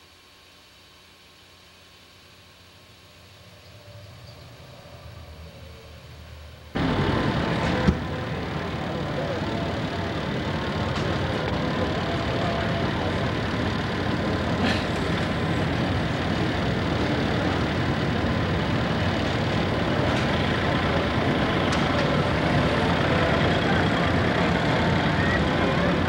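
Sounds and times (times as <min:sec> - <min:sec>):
tractor engine under heavy load: 0:06.1 - 0:26.0.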